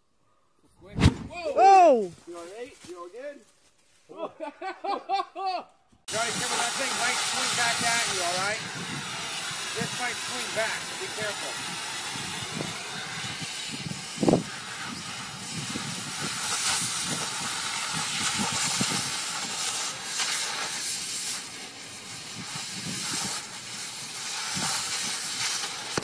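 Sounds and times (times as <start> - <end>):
short thump: 0.9 - 1.4
cutting torch hissing: 6.1 - 26.0.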